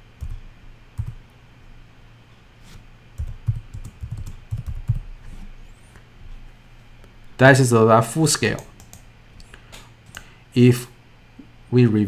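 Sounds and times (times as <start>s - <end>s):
typing on computer keyboard: 3.2s - 5.1s, 8.6s - 9.0s.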